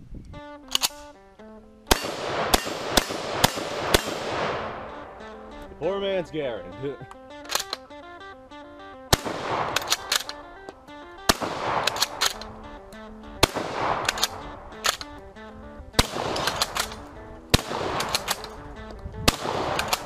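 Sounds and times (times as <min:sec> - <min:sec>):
background music: 0:00.4 - 0:20.0
shotgun bolt clacking: 0:00.6 - 0:05.8, 0:07.0 - 0:20.0
shotgun firing: 0:01.9 - 0:05.6, 0:09.1 - 0:20.0.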